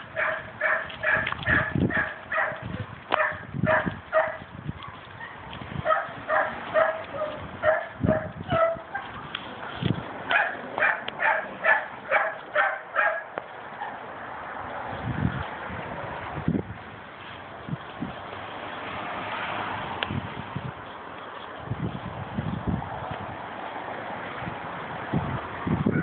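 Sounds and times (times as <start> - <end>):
dog barking quickly: 0.2 - 2.6, 3.2 - 4.4, 5.8 - 8.9, 10.3 - 13.3.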